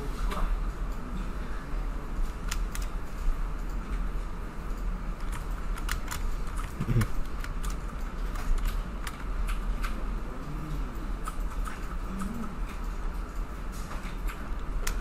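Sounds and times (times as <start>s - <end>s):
low electrical hum: 0.0s - 15.0s
mouse and keyboard clicks: 2.4s - 2.9s, 5.2s - 10.0s.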